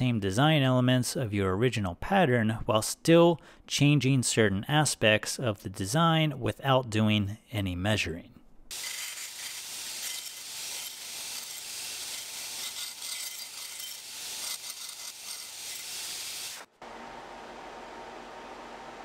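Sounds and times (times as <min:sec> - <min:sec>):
belt grinder grinding steel: 0:08.7 - 0:16.7.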